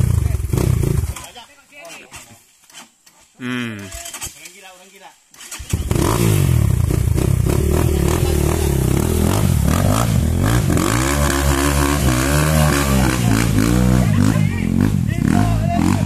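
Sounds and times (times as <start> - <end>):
dirt bike engine revving: 0.0 - 1.2, 5.4 - 16.0.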